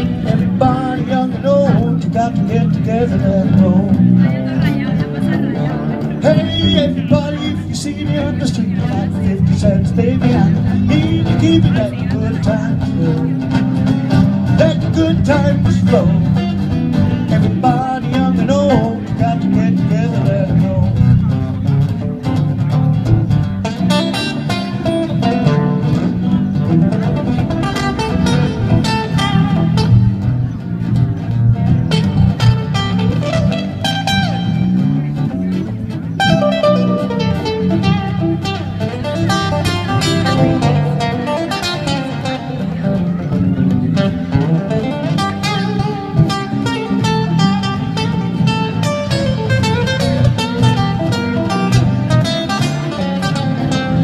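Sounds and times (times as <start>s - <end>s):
bass and rhythm: 0.0s - 54.0s
blues guitar lead runs: 0.0s - 54.0s.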